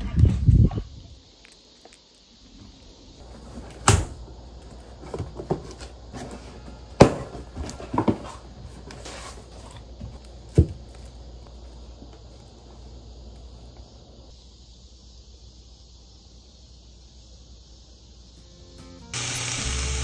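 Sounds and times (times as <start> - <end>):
cardboard and plastic rustling: 3.2 - 12.4
boxes knocking on stone countertop: 7.0 - 8.4.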